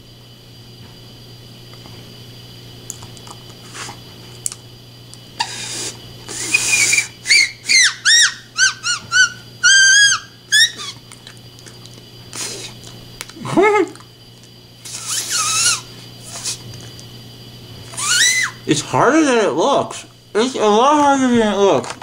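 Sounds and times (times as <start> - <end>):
bird whistle chirps: 6.3 - 11.0, 14.9 - 16.5, 18.0 - 18.6.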